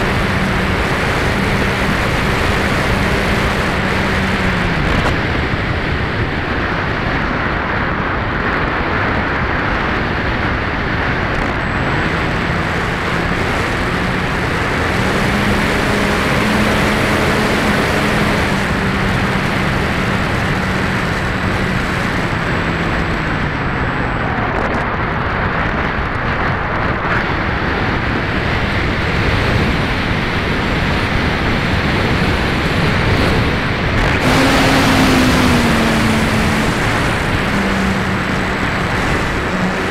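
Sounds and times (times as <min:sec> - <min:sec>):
electric motor and propeller hum: 0:00.0 - 0:06.2, 0:11.1 - 0:24.4, 0:28.6 - 0:39.9
airflow rushing over camera: 0:30.9 - 0:39.9.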